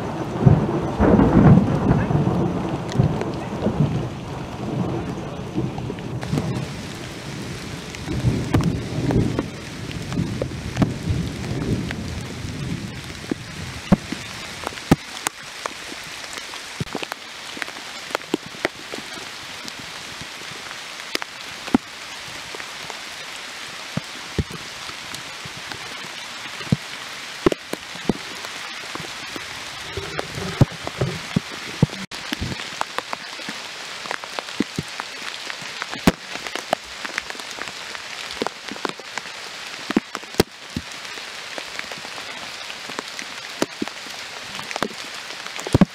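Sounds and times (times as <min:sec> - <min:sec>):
low rumble of thunder: 0:00.0 - 0:14.4
large raindrops tapping: 0:00.0 - 0:45.9
rain on foliage: 0:00.0 - 0:45.9.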